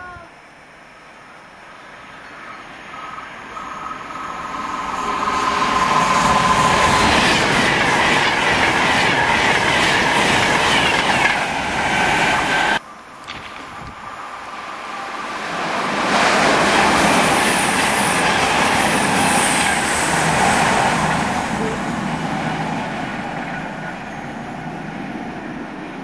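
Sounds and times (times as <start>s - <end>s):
train passing at high speed: 0.7s - 26.0s
wheels rattling on track: 3.6s - 14.2s.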